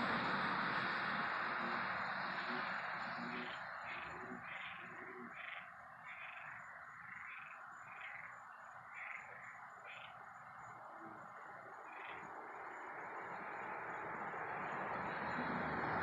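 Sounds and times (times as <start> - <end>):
frogs and insects pulsing: 0.0 - 16.0.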